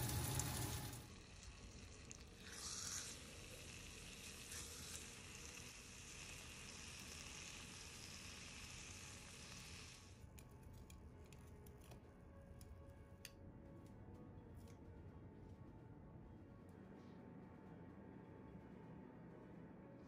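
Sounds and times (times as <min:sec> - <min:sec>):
steak sizzling in a skillet: 0:02.4 - 0:10.0.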